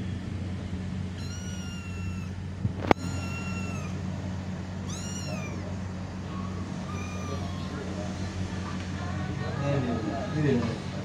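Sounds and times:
kitten meowing: 1.1 - 4.2, 4.8 - 8.0.

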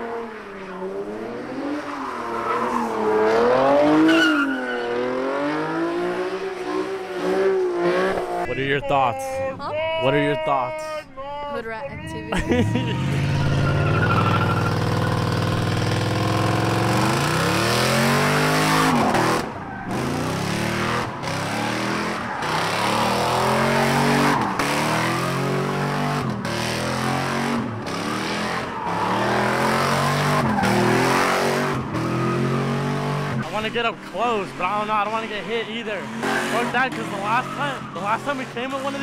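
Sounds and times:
car engine revving hard: 0.0 - 8.5, 12.7 - 39.0
tyres screeching: 1.6 - 5.5, 12.9 - 26.4, 27.8 - 39.0.

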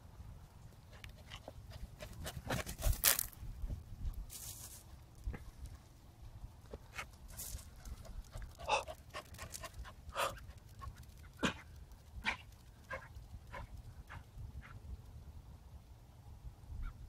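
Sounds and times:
small dog panting: 0.8 - 2.9, 7.0 - 14.8.

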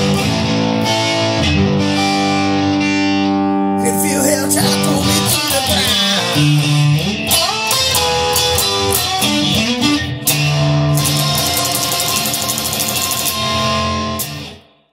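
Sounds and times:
bass line: 0.0 - 11.5
guitar plucked and strummed: 0.0 - 14.9.

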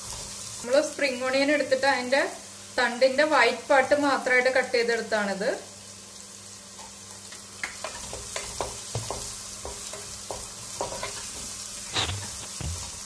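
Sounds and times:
onions sizzling in oil: 0.0 - 13.0
spatula tapping and scraping pan: 6.8 - 13.0.

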